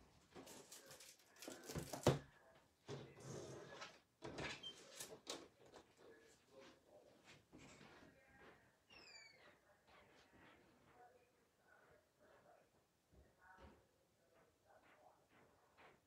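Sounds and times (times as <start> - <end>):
rustles of things being moved: 0.0 - 8.6.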